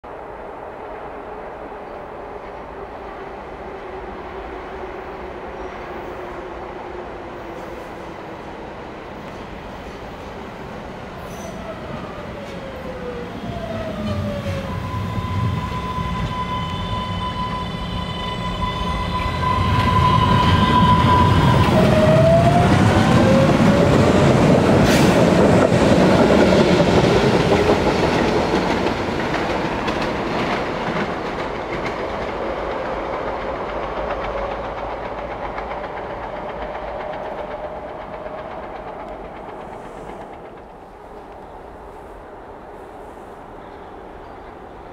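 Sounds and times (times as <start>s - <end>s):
electric train whine: 0.1s - 44.9s
train wheels rumbling on rails: 1.7s - 44.9s.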